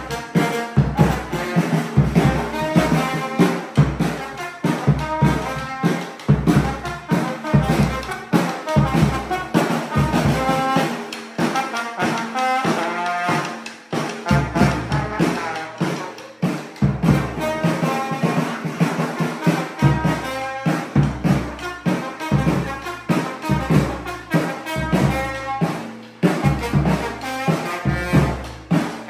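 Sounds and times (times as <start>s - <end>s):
bass drum beat: 0.0s - 4.2s, 14.2s - 18.1s
trombone melody: 0.0s - 29.0s.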